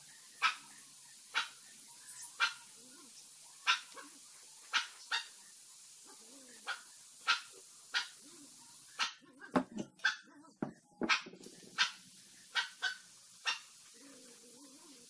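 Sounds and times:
dog barking: 3.7 - 5.3, 6.1 - 8.2, 9.0 - 9.2, 11.0 - 13.7.

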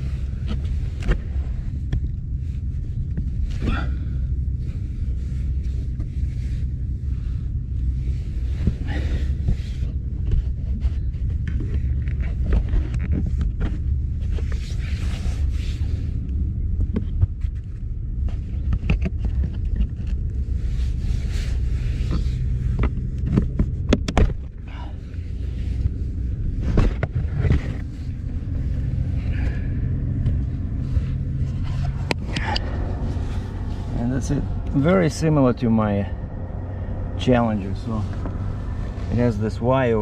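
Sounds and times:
steady low rumble: 0.0 - 40.0
hands rustling and scraping: 25.0 - 35.4.

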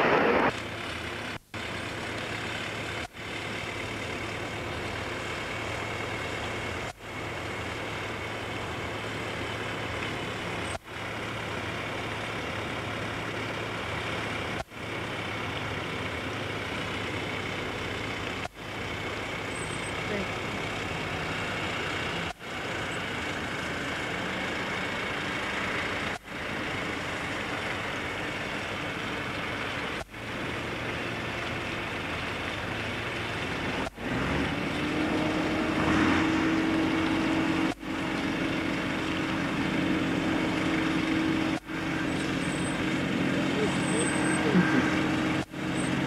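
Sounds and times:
engine noise: 0.0 - 46.0
low droning tone: 34.9 - 46.0.

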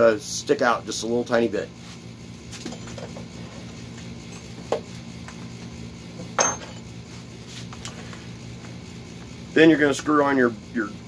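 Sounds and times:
steady low hum: 0.0 - 11.0
tools clinking on workbench: 6.4 - 6.9.

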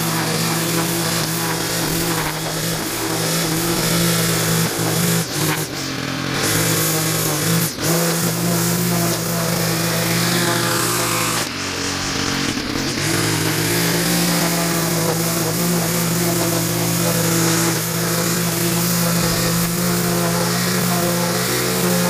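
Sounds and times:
string trimmer engine running: 0.0 - 22.0
trimmer line cutting grass: 0.0 - 22.0.

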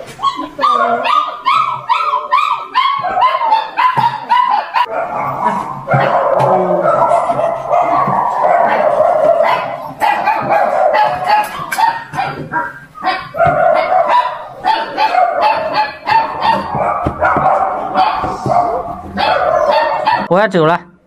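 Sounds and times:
dogs barking: 0.1 - 20.3
dogs yelping: 0.1 - 20.3.

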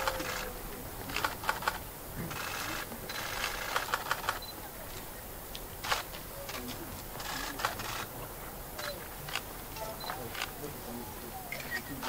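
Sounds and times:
camera shutters clicking: 1.1 - 4.6, 5.8 - 8.1.

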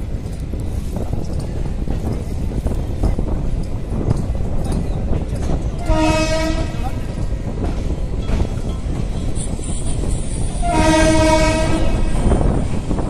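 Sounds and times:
train rumble and wind noise: 0.0 - 13.0
locomotive horn: 5.8 - 6.9, 10.6 - 12.3.

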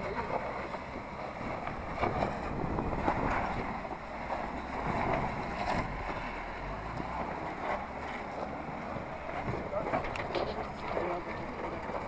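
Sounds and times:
car engine running: 0.0 - 12.0
wind rushing over microphone: 1.8 - 3.8.

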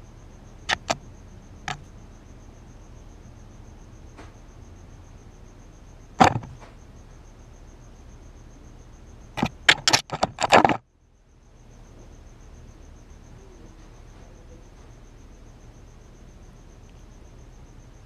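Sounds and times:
crickets chirping: 0.0 - 18.0
knocks and scrapes on camera: 0.7 - 1.0, 6.2 - 6.7, 9.4 - 10.8.

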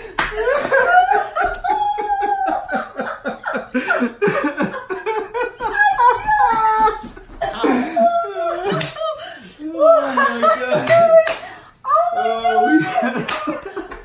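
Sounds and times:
people laughing and exclaiming: 0.0 - 14.0
man laughing heartily: 0.3 - 8.8.

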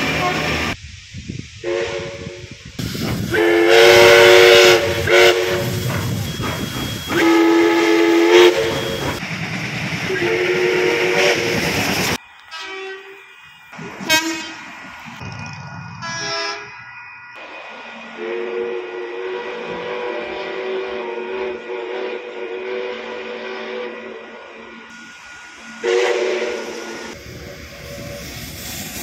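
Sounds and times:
steam locomotive whistle blasts: 0.0 - 0.8, 1.6 - 2.6, 3.2 - 9.2, 10.1 - 11.7, 12.5 - 13.4, 14.0 - 14.7, 16.0 - 16.8, 18.0 - 28.5
short train horn toots: 3.3 - 5.8, 7.1 - 9.2, 10.1 - 11.6, 14.1 - 14.6, 25.8 - 26.9.

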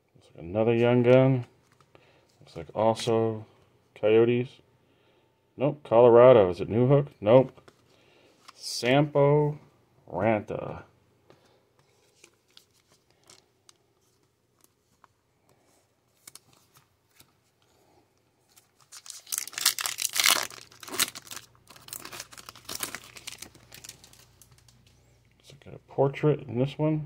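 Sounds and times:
cards being handled: 11.3 - 15.2
foil wrapper crackling: 18.6 - 24.9.

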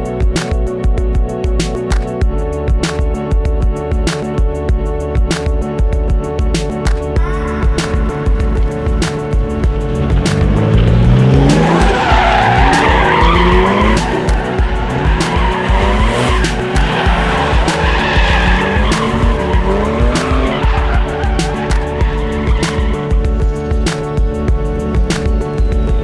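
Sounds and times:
background music with beat: 0.0 - 26.0
car engine revving: 7.8 - 25.6
tyres squealing: 11.3 - 23.1.

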